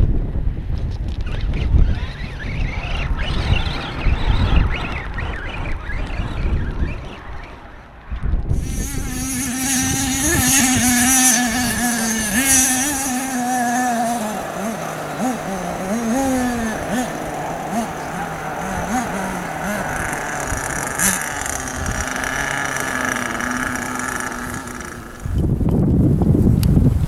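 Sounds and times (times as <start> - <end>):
wind buffeting microphone: 0.0 - 27.0
toy truck motor whine: 8.6 - 25.5.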